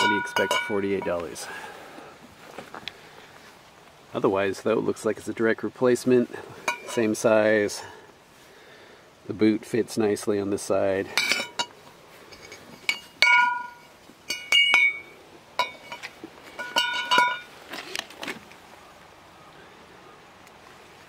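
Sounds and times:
metal parts clinking together: 0:11.2 - 0:11.7, 0:12.3 - 0:18.3.

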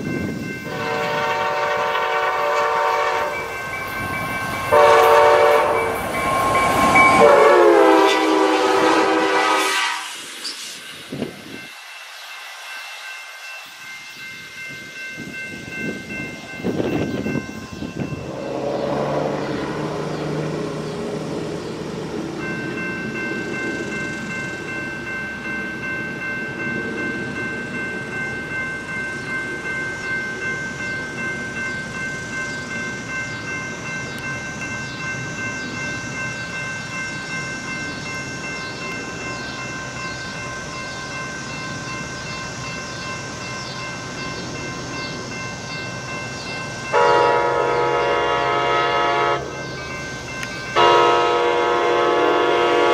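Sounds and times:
crossing warning bell ringing: 0:00.0 - 0:09.8, 0:10.6 - 0:52.9
train approaching: 0:00.0 - 0:52.9
train horn: 0:00.6 - 0:03.5, 0:04.7 - 0:06.0, 0:07.1 - 0:10.2, 0:46.9 - 0:49.6, 0:50.8 - 0:52.9.

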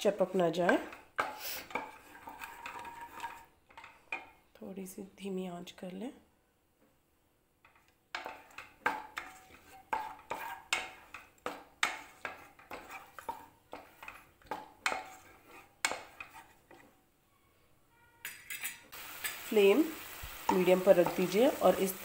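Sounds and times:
wooden spoon scraping metal pan: 0:00.0 - 0:04.4, 0:07.7 - 0:17.0, 0:18.2 - 0:21.8
frying sizzle: 0:18.9 - 0:22.0.

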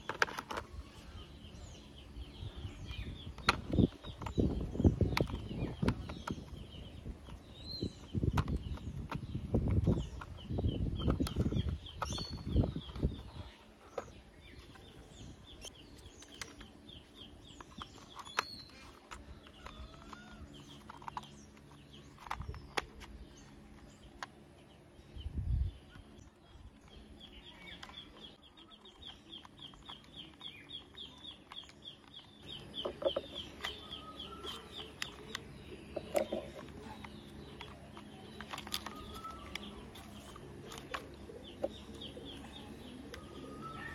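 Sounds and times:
plastic toy parts clattering: 0:00.0 - 0:00.8, 0:16.0 - 0:24.5, 0:28.9 - 0:43.3
birds chirping: 0:00.0 - 0:43.9.

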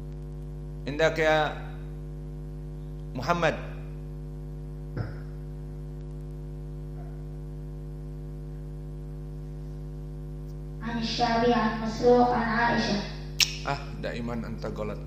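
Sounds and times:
electrical mains hum: 0:00.0 - 0:15.0
short blip: 0:13.4 - 0:13.7.

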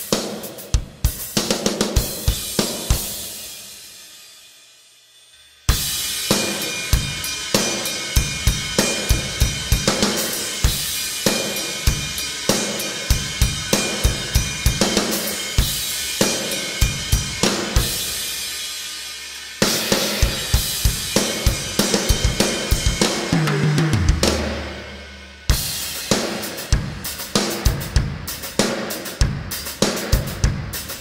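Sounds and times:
rock drum beat: 0:00.0 - 0:04.6, 0:05.5 - 0:31.0
cymbal crash: 0:02.0 - 0:27.8.

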